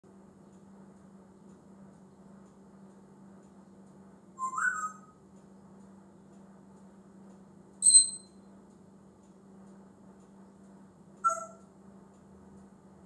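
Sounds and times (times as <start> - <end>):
parrot whistling: 4.4 - 5.1, 7.8 - 8.3, 11.2 - 11.6.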